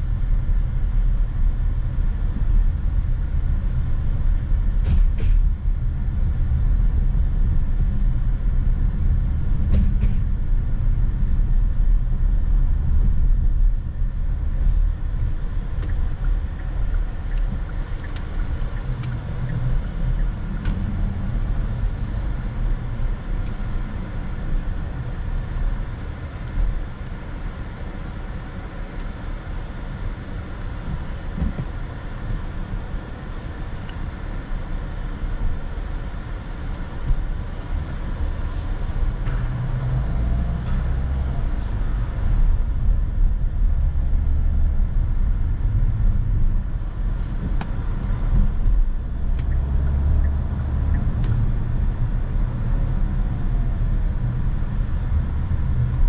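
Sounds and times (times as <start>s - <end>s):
road and tyre noise: 0.0s - 56.0s.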